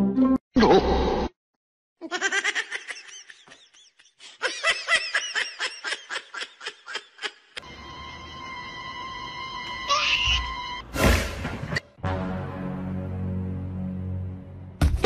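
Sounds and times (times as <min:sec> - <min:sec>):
high-pitched laughter: 0:02.0 - 0:07.6.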